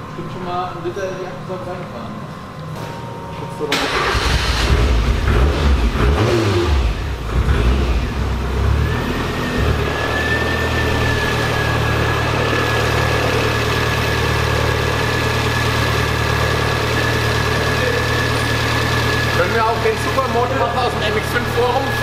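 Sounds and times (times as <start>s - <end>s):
car engine idling: 3.7s - 22.0s
steady high whine: 8.0s - 22.0s.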